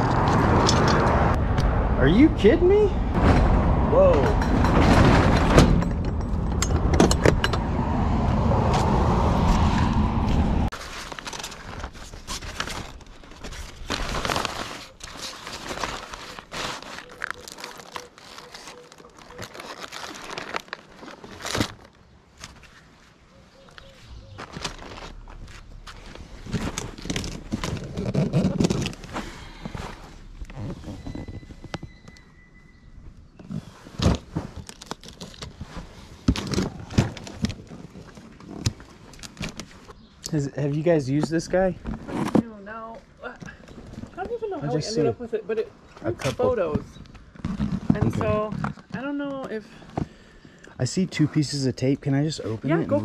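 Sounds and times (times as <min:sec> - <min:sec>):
nylon bag rustling: 0:10.7 - 0:23.1, 0:24.2 - 0:31.7
cardboard box rustling and scraping: 0:24.2 - 0:32.0, 0:41.8 - 0:42.8, 0:46.3 - 0:49.1.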